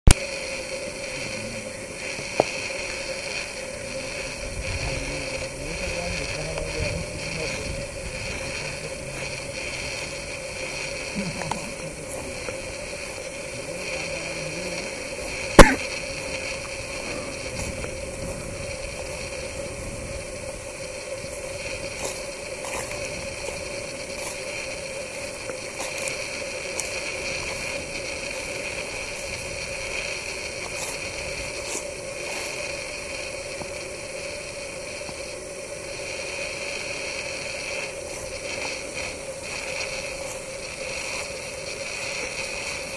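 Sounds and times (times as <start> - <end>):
hiss-like drone: 0.1 - 42.9
sharp loud click: 15.6 - 15.9.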